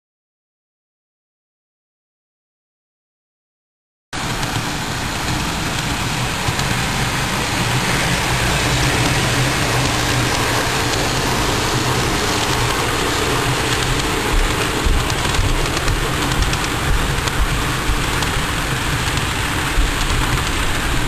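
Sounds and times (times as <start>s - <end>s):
model train motor hum: 4.2s - 21.0s
model train wheels rolling on track: 4.2s - 21.0s.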